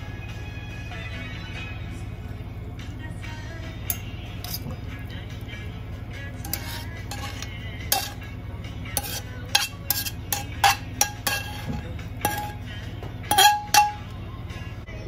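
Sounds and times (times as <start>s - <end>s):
metal tongs clinking on pan and plate: 3.9s - 4.7s, 6.4s - 8.3s, 9.0s - 12.6s, 13.3s - 14.2s.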